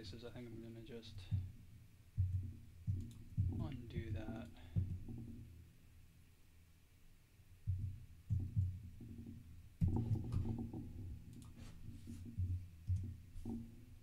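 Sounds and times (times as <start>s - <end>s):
keystrokes on computer keyboard: 2.3s - 3.2s.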